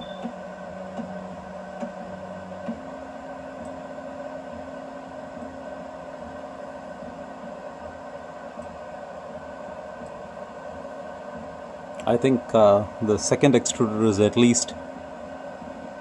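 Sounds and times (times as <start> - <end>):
cooling fans whirring: 0.0 - 16.0
printer motors whining: 0.0 - 16.0.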